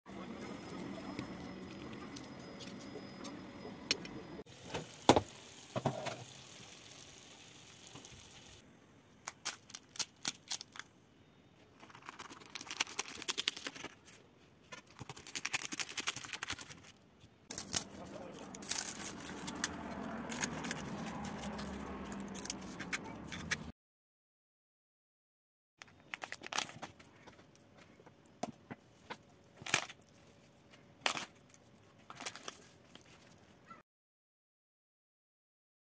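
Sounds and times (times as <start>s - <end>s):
pastry crackling and crunching: 9.3s - 10.9s, 11.7s - 23.7s, 25.8s - 28.0s, 29.4s - 33.8s.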